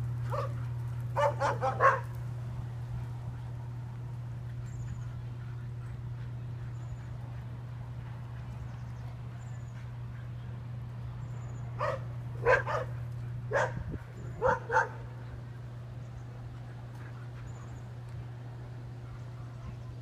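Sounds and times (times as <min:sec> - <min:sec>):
dog barking: 0:00.3 - 0:00.6, 0:01.2 - 0:02.1, 0:11.8 - 0:15.1.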